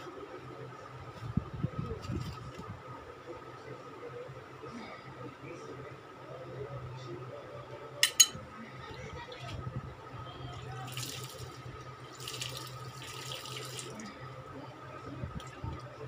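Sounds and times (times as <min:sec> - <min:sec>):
mug clinking on metal basin: 0:08.0 - 0:08.4
water pouring onto plant leaves: 0:12.2 - 0:14.0.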